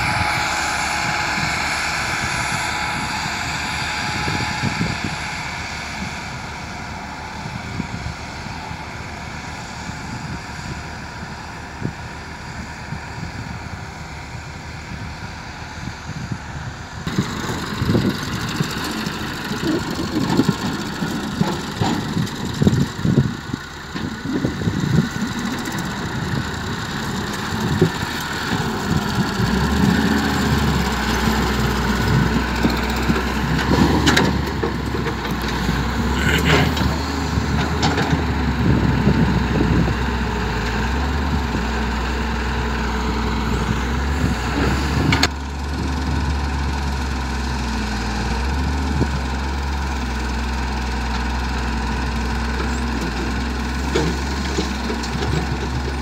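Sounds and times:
diesel engines humming: 0.0s - 56.0s
excavator knocks and clatter: 17.1s - 23.2s, 27.0s - 39.8s, 44.5s - 46.2s, 52.6s - 56.0s.

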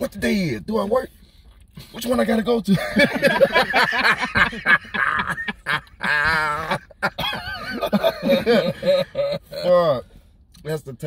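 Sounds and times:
men laughing hard: 2.7s - 9.6s.

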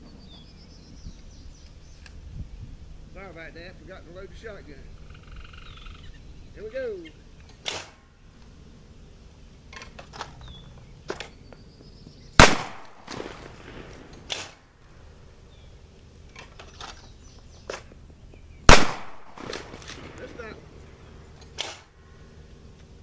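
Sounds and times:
shotgun shots with echo: 7.6s - 8.0s, 12.4s - 14.6s, 18.7s - 20.5s.

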